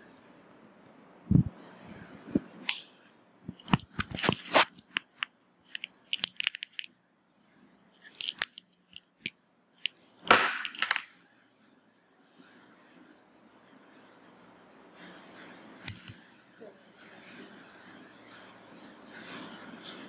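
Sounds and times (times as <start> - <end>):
rustling of handled object: 3.5 - 6.9, 8.0 - 10.9.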